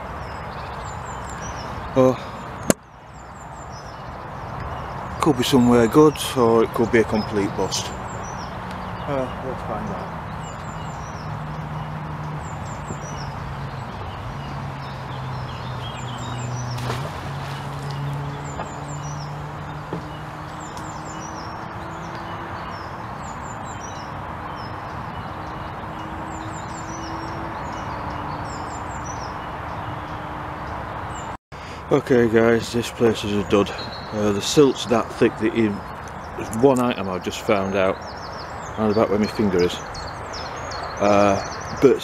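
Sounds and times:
distant engine drone: 0:00.0 - 0:42.0
small birds chirping: 0:00.0 - 0:42.0
magnet splashing into water: 0:16.7 - 0:18.0.

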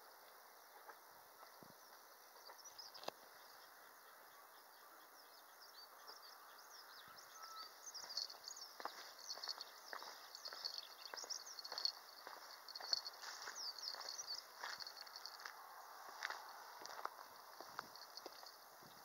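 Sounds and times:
small birds chirping: 0:01.8 - 0:15.5
footsteps: 0:08.0 - 0:19.0.

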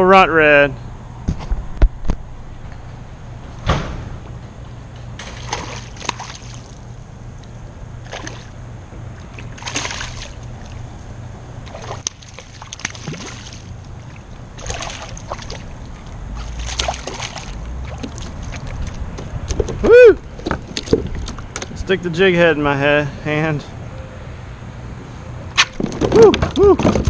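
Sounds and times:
fish splashing at water surface: 0:05.2 - 0:06.9, 0:08.0 - 0:08.6, 0:09.2 - 0:10.9, 0:11.6 - 0:19.1.

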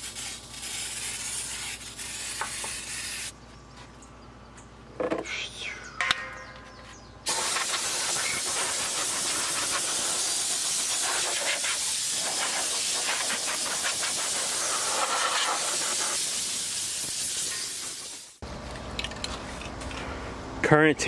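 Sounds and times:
air blow gun hissing: 0:07.3 - 0:18.4.

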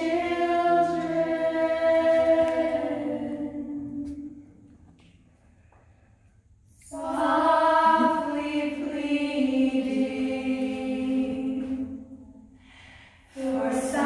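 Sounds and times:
group of voices singing: 0:00.0 - 0:04.4, 0:06.8 - 0:12.3, 0:13.3 - 0:14.0.

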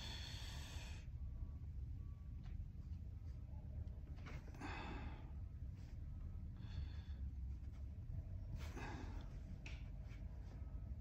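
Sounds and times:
person breathing softly: 0:00.0 - 0:01.3, 0:04.5 - 0:07.8, 0:08.6 - 0:09.6
low steady hum: 0:00.0 - 0:11.0.

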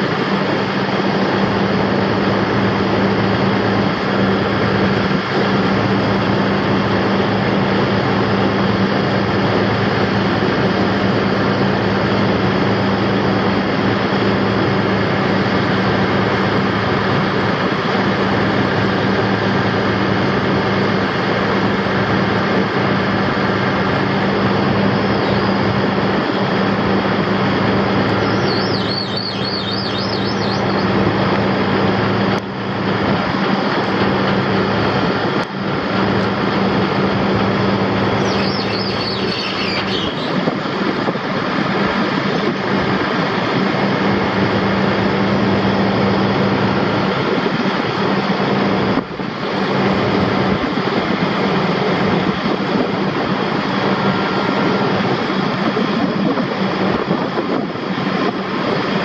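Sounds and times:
diesel truck engine running: 0:00.0 - 0:59.0
high wavering squeal: 0:28.0 - 0:31.0, 0:37.8 - 0:40.7.

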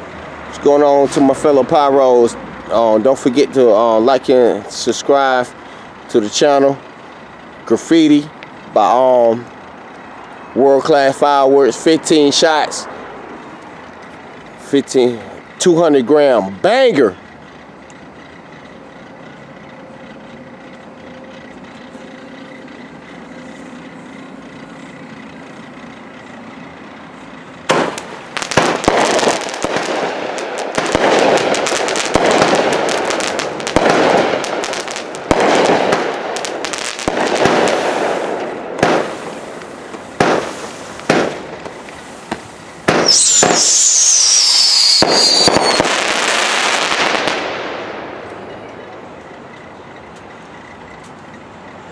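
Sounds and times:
firework crackling: 0:00.0 - 0:49.5
firework hiss: 0:27.7 - 0:48.1
firework bangs: 0:27.7 - 0:48.5
firework whistle falling in pitch: 0:42.9 - 0:47.0.

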